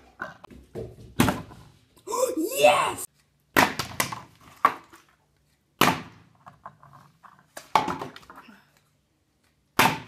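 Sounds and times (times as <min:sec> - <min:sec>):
water bottles thudding on wooden floor: 0:00.2 - 0:01.6, 0:07.6 - 0:08.4.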